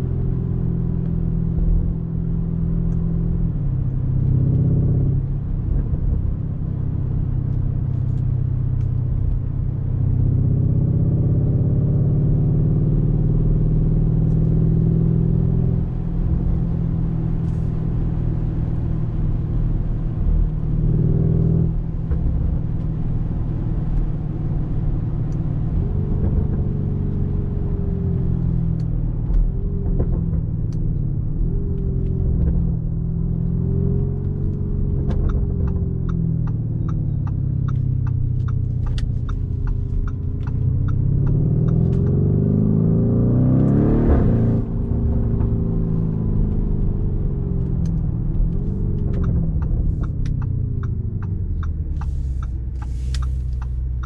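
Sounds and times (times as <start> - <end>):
car engine from inside cabin: 0.0 - 54.0
light ticking: 35.2 - 42.1, 47.7 - 54.0.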